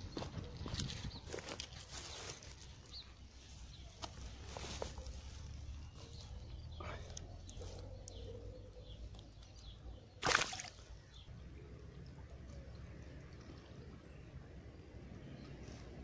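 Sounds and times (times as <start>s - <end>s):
fish splashing in water: 10.2s - 10.9s.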